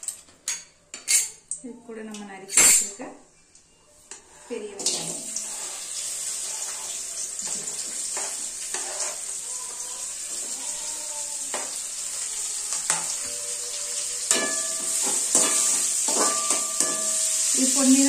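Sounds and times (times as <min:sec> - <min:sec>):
onions sizzling in hot oil: 0:04.8 - 0:18.0
spoon scraping cutting board: 0:08.2 - 0:09.3
spoon knocking on ringing pan: 0:14.3 - 0:17.6.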